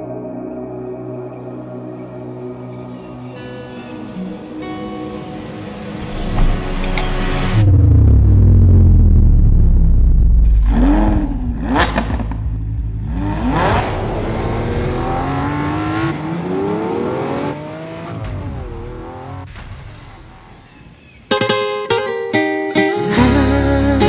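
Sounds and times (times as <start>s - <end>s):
engine revving: 5.9s - 19.5s.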